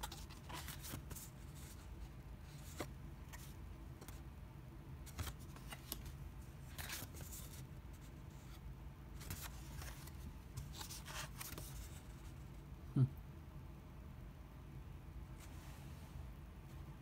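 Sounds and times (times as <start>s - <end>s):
paper cards rustling: 0.0s - 4.2s, 5.0s - 8.6s, 9.2s - 12.4s.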